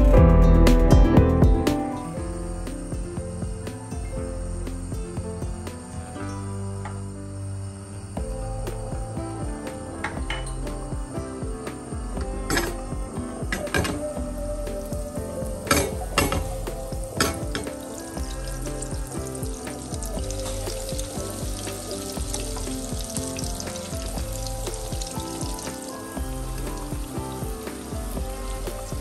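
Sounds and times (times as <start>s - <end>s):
chicken sizzling in frying pan: 14.7s - 29.0s.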